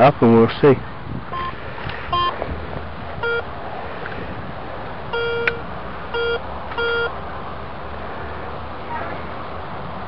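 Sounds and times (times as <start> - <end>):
metal detector beeps: 1.3 - 1.5, 2.1 - 2.3, 3.2 - 3.4, 5.1 - 7.1.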